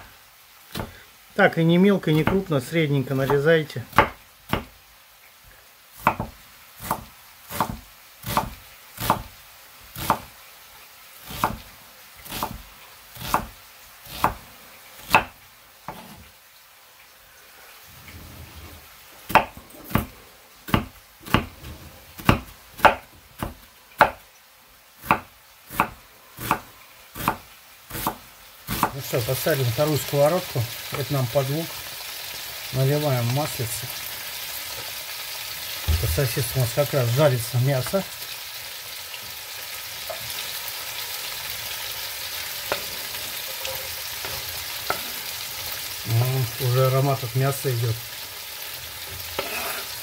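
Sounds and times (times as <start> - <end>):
knife chopping on wooden board: 3.9 - 4.7, 6.0 - 9.3, 12.3 - 12.6, 15.1 - 16.2, 19.3 - 20.1, 20.7 - 24.2, 25.0 - 29.0.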